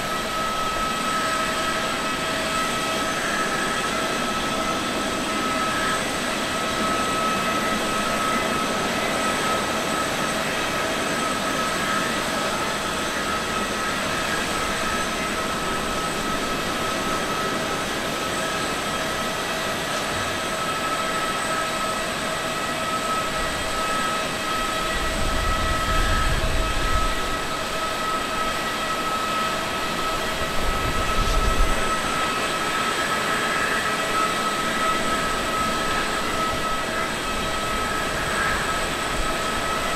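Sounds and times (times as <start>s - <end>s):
jet engines whining: 0.0s - 39.9s.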